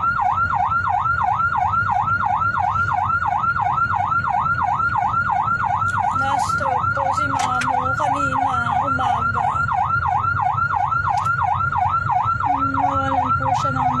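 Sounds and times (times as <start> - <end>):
engine and traffic rumble: 0.0 - 14.0
siren yelping: 0.0 - 14.0.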